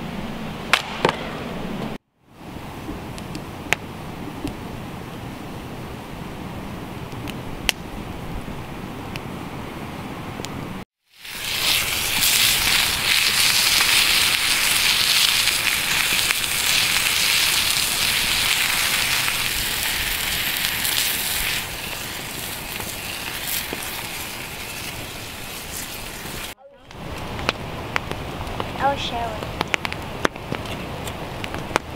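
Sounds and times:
burning wood crackling: 0:10.4 - 0:31.9
sausages sizzling in a pan: 0:11.1 - 0:26.6.

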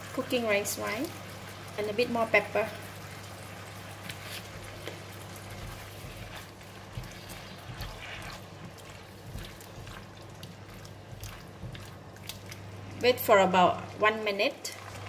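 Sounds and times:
food simmering in wok: 0:00.0 - 0:14.0, 0:14.6 - 0:15.0
turner scraping wok: 0:04.0 - 0:12.6.

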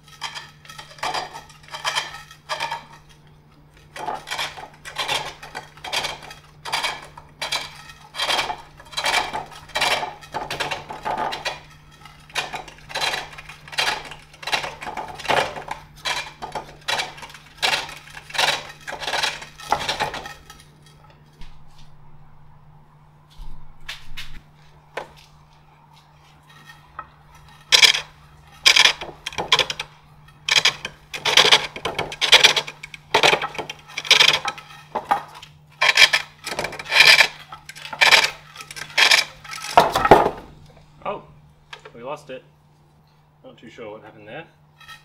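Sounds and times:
pole lathe clattering scrape: 0:00.0 - 0:21.2, 0:26.2 - 0:40.6, 0:44.8 - 0:45.0.

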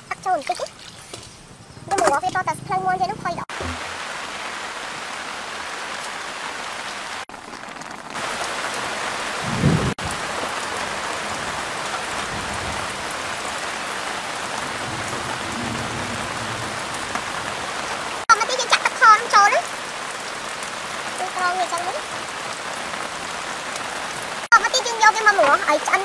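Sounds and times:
low thump: 0:03.5 - 0:04.0
sauce sizzling and bubbling: 0:06.5 - 0:10.8.

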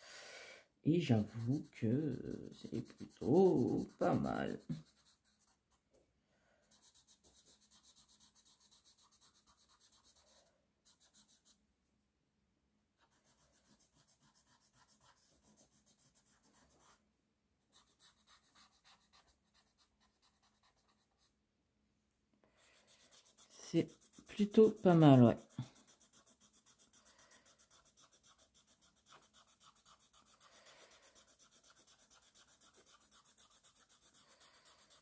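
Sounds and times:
blending stump rubbing paper: 0:23.0 - 0:35.0.

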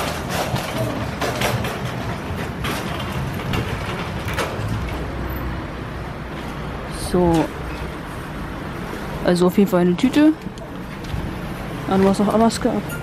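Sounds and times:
shopping cart rattling on paving: 0:00.0 - 0:05.5.

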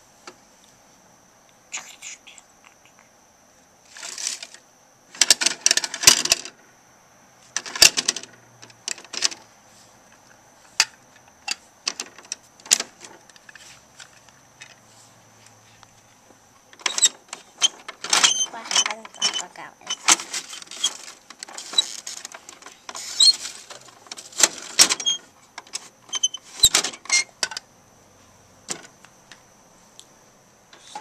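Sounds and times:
plastic toy clicks and rattles: 0:16.8 - 0:25.9.

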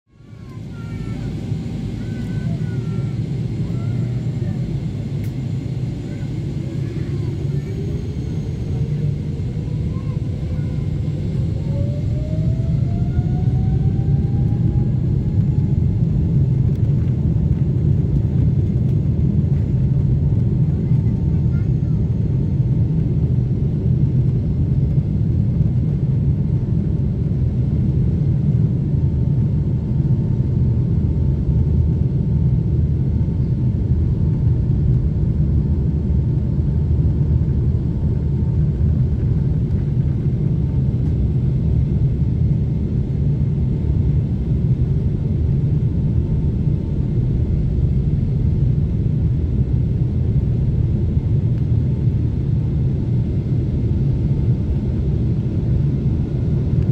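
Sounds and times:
jet engines rumbling in cabin: 0:00.1 - 0:56.9.

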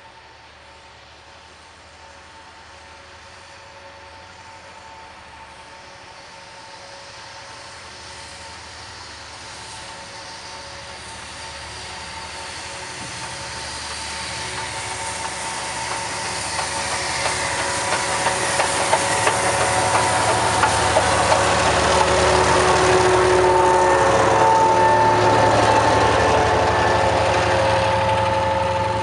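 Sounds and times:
diesel locomotive engine: 0:00.0 - 0:29.0
steam train passing: 0:00.0 - 0:29.0
wheels clicking over rail joints: 0:11.8 - 0:23.5.

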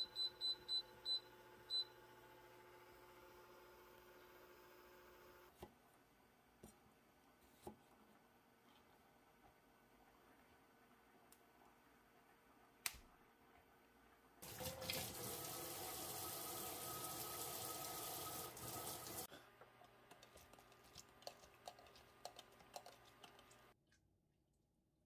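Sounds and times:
tap water running into steel sink: 0:14.4 - 0:19.3.

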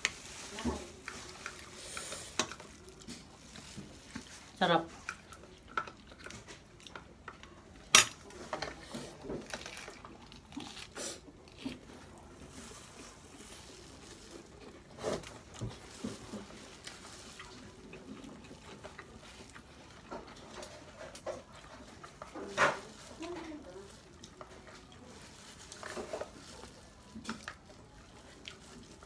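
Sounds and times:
chewing food: 0:00.0 - 0:29.0.

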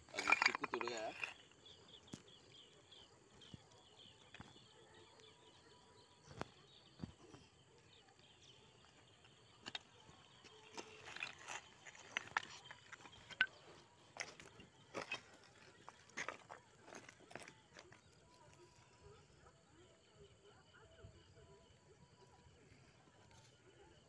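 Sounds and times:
faint chirping: 0:00.0 - 0:24.0
stones shifting underfoot: 0:00.1 - 0:02.4, 0:09.0 - 0:18.5.

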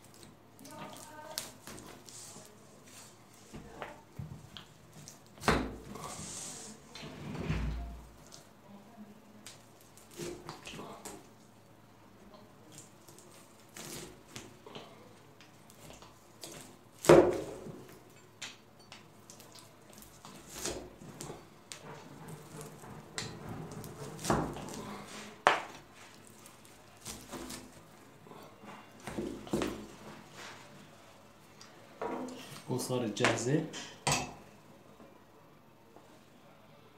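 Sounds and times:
cleaver chopping through nuts: 0:09.5 - 0:11.3, 0:15.7 - 0:17.9, 0:26.5 - 0:27.9.

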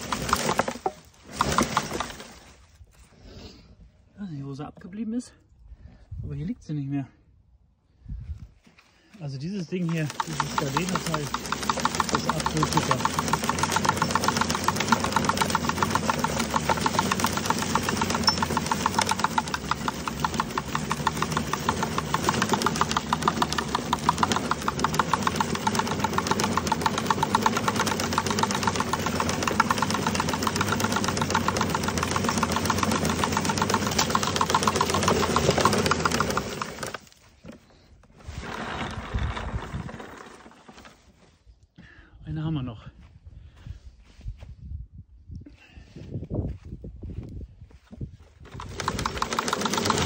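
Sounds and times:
leaf collector brush clatter: 0:00.0 - 0:02.6, 0:09.6 - 0:37.6, 0:48.5 - 0:50.0.

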